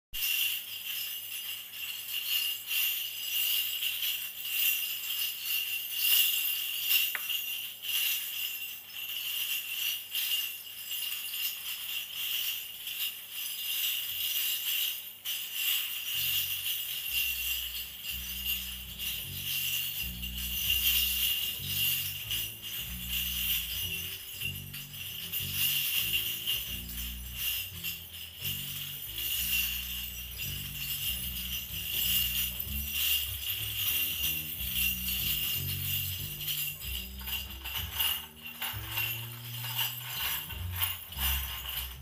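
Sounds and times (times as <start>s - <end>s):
sleigh bells shaken: 0.1s - 42.0s
low bass notes: 17.0s - 39.7s.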